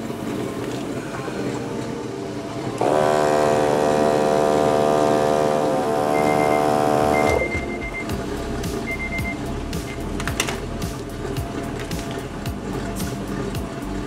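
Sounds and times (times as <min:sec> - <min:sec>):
portable air compressor running: 0:02.8 - 0:14.0.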